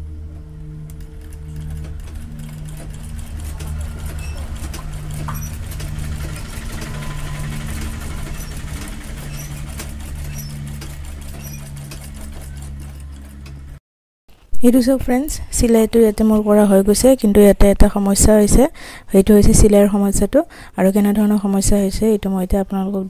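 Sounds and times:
sewing machine ticking: 0:00.8 - 0:13.8.

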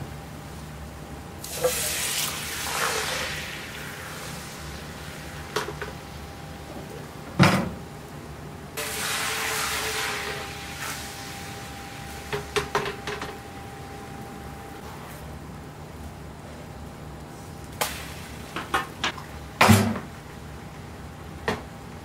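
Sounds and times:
egg hissing in frying pan: 0:01.4 - 0:05.5, 0:08.8 - 0:11.4.

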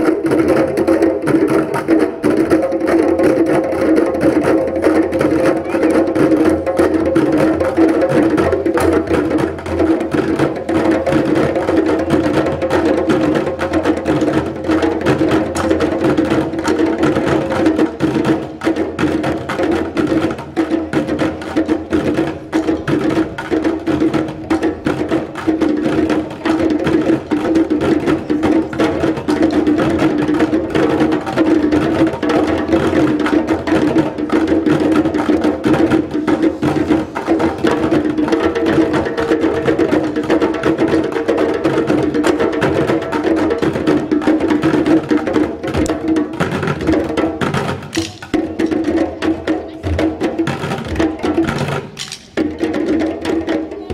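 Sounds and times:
djembe hand drums: 0:00.0 - 0:53.9
sticks striking plastic buckets: 0:47.4 - 0:48.8, 0:50.5 - 0:52.4.

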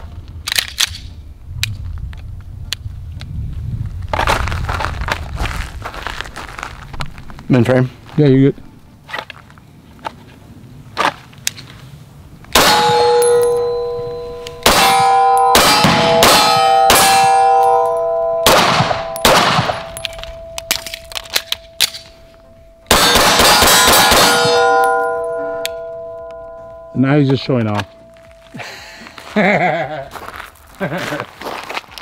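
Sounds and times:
pistol shots: 0:12.6 - 0:13.8, 0:14.5 - 0:22.1, 0:22.9 - 0:25.4
steel plates ringing: 0:12.6 - 0:28.4.

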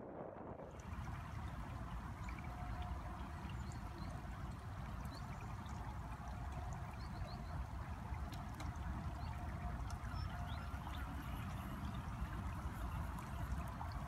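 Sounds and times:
wind rumbling on microphone: 0:00.0 - 0:14.0.

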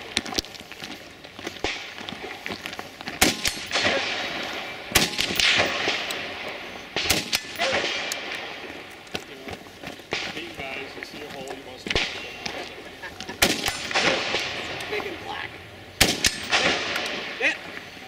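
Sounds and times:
rifle shots echoing: 0:01.6 - 0:02.0, 0:03.2 - 0:09.0, 0:10.0 - 0:17.8.

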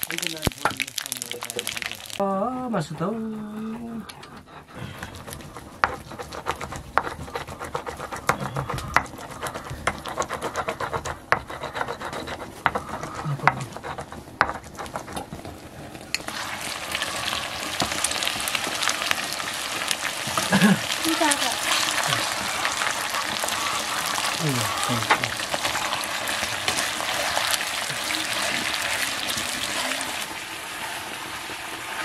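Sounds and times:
food frying sizzle: 0:00.0 - 0:03.8, 0:05.1 - 0:32.0
utensil scraping metal pan: 0:04.2 - 0:15.3.

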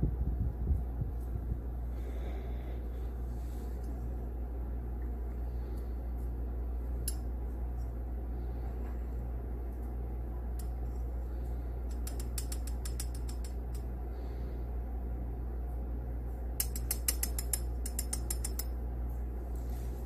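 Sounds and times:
steady low hum: 0:00.0 - 0:20.0
quick light metal ticks: 0:11.9 - 0:13.9, 0:16.6 - 0:18.7.

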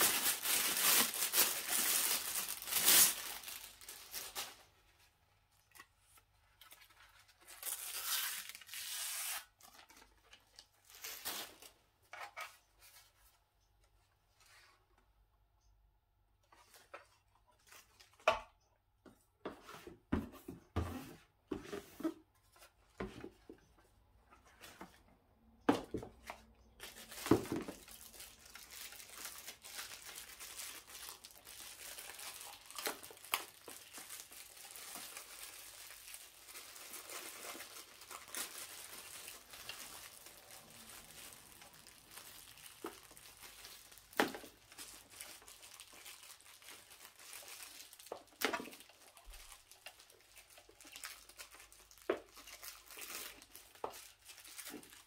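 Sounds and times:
wrapping crinkling: 0:00.0 - 0:05.0, 0:06.0 - 0:11.8, 0:26.7 - 0:55.0.

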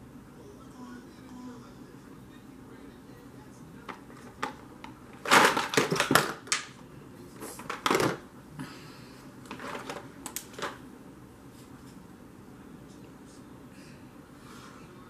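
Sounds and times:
makeup items clattering: 0:03.9 - 0:06.7, 0:07.6 - 0:08.2, 0:09.5 - 0:10.8.

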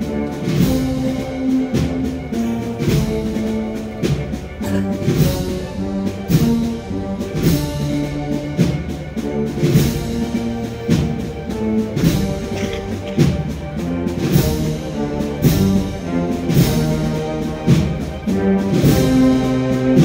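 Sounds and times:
drum and cymbal strokes: 0:00.0 - 0:20.0
wind band playing a march: 0:00.0 - 0:20.0.

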